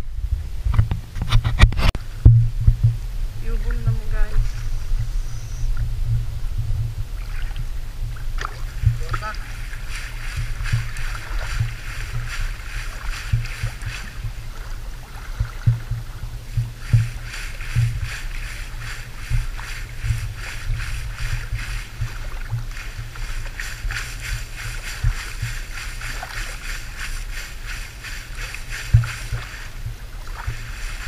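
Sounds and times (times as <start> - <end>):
low thumps: 0.0 - 30.6
seawater sloshing and splashing: 6.2 - 31.0
net bag dragged through water: 7.1 - 31.0.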